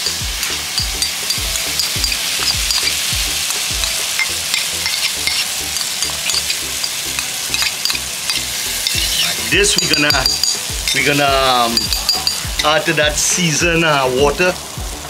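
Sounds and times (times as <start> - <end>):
background music with low beat: 0.0 - 15.0
paste sizzling in hot oil: 0.0 - 15.0
spoon scraping a bowl: 1.0 - 11.0.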